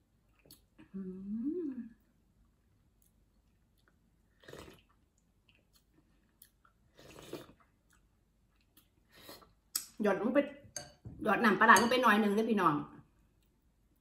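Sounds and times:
person chewing: 0:02.5 - 0:09.9.

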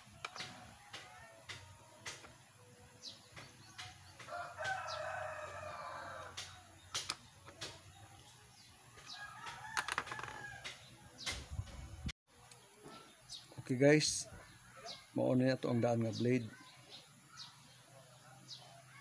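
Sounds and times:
rooster crowing: 0:04.2 - 0:06.4, 0:09.1 - 0:10.8.

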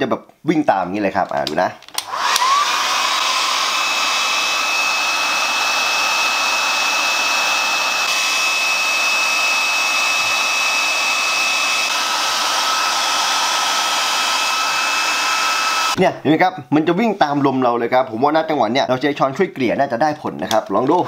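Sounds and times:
hot-air blower whining: 0:02.0 - 0:16.0.

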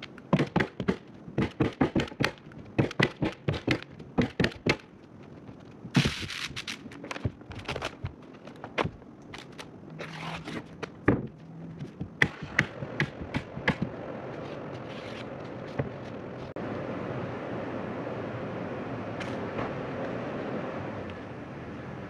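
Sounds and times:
steady rushing noise: 0:04.9 - 0:22.0.

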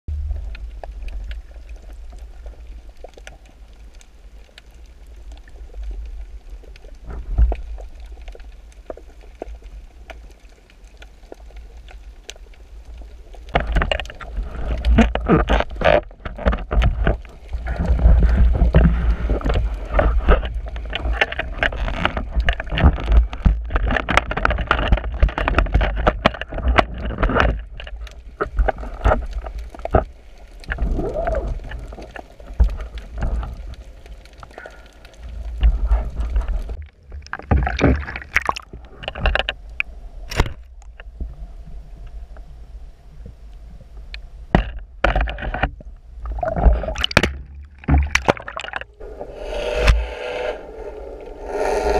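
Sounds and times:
low underwater rumble: 0:00.1 - 0:51.9
underwater gurgling and sloshing: 0:00.1 - 0:51.9
knocks and splashes: 0:13.5 - 0:30.1, 0:35.6 - 0:39.5, 0:44.5 - 0:49.0.

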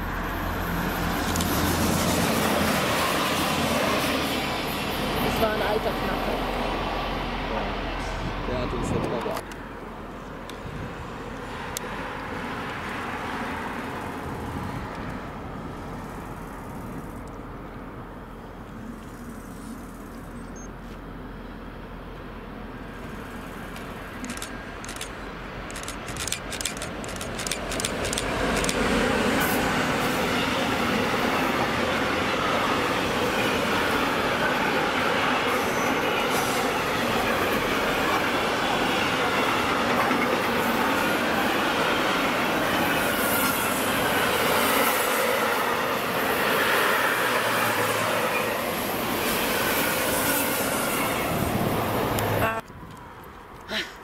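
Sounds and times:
freight train wheels rumbling on rails: 0:00.0 - 0:20.0, 0:21.5 - 0:53.6
train wheels clicking: 0:23.1 - 0:34.4.

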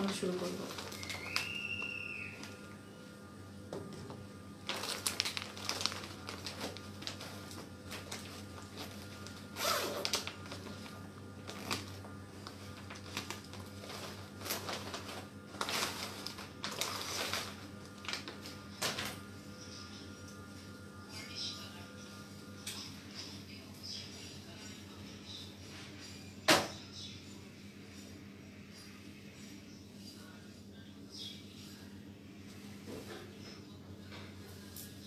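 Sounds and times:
plastic bag rustling and crinkling: 0:00.0 - 0:02.6, 0:04.6 - 0:19.2.

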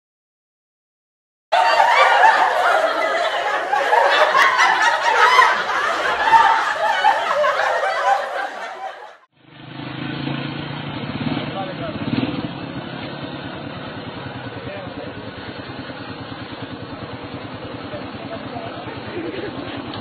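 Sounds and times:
crowd laughing: 0:01.5 - 0:09.3, 0:14.8 - 0:20.0.

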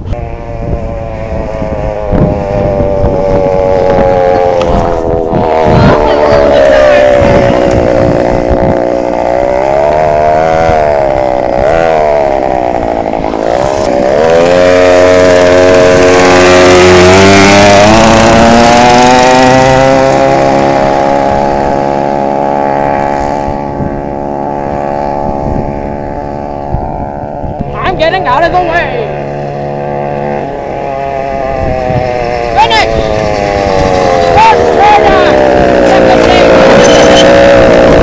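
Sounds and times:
mini bike engine revving: 0:00.0 - 0:38.0.

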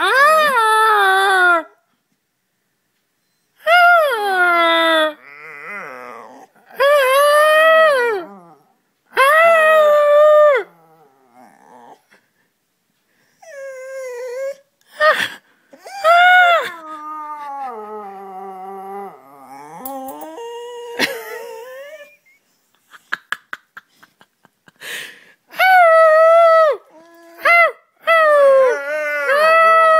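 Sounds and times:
dog howling: 0:15.9 - 0:22.1, 0:25.9 - 0:29.9.

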